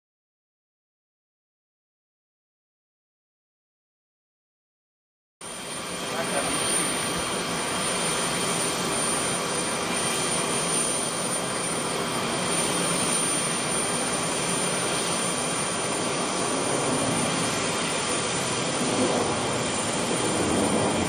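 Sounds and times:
jet plane flying past: 5.4s - 21.0s.

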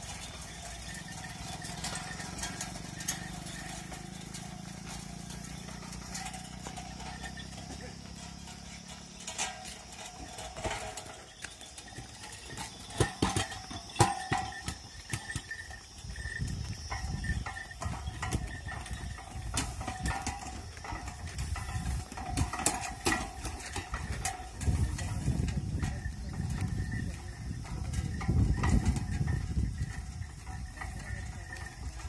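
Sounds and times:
hooves on a dirt road: 0.0s - 32.0s
wooden cart knocking and rattling: 0.0s - 32.0s.

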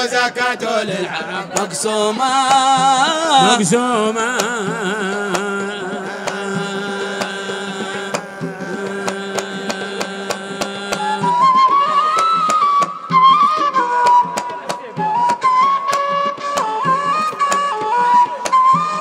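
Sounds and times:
drum strikes: 1.4s - 11.6s
flute melody: 10.9s - 19.0s.

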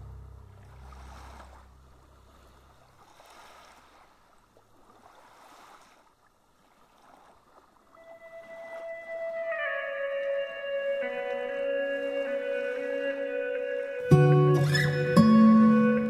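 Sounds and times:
low drone: 0.0s - 2.6s
small waves washing on beach: 0.5s - 14.1s.

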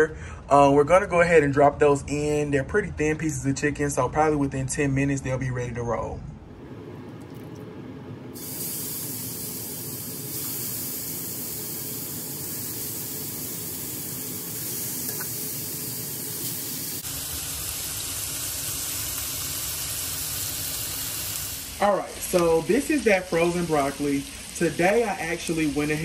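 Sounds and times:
chicken sizzling in oil: 8.4s - 26.0s.

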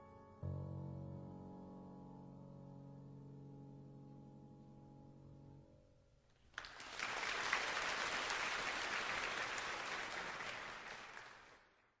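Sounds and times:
audience applause: 6.5s - 12.0s.

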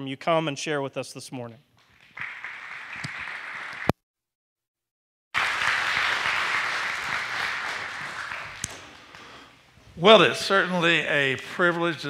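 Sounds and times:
congregation applauding: 1.8s - 3.9s, 5.4s - 9.4s.

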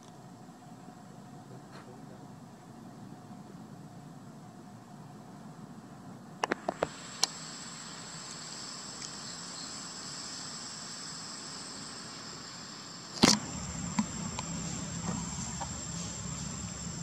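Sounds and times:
high-pitched insect drone: 6.7s - 17.0s
sharp clicks: 13.1s - 15.8s
low rustling: 13.3s - 17.0s.

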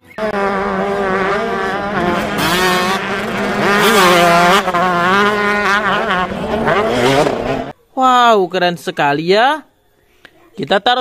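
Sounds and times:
dirt bike engine revving: 0.0s - 7.7s.

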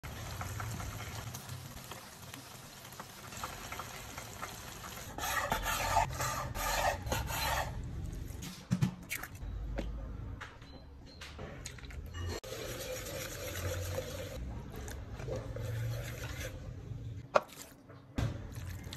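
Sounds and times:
pan sizzling: 0.0s - 6.1s.

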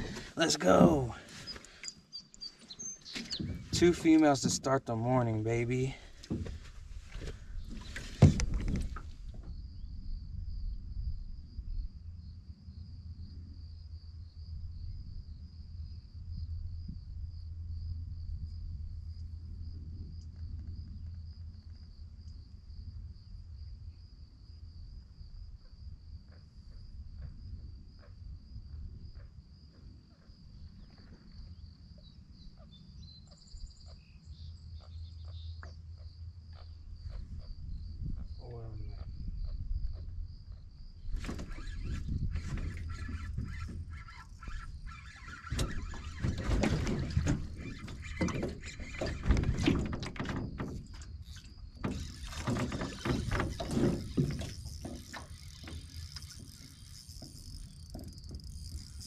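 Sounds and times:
low wind rumble: 0.0s - 1.5s, 2.4s - 29.6s
insect trilling: 40.8s - 59.0s.

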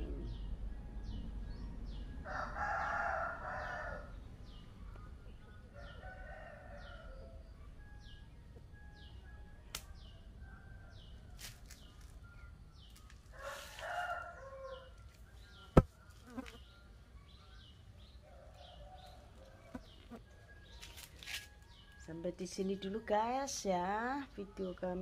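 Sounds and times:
rooster crowing: 2.2s - 4.2s, 13.3s - 15.0s.

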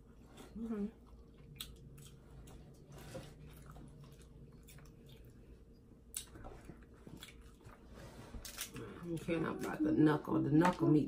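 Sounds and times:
food being chewed: 0.0s - 9.3s.

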